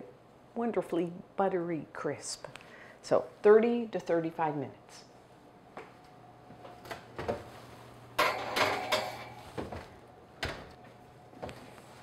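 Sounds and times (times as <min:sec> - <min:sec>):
metal pan rattling on oven rack: 0:08.2 - 0:09.4.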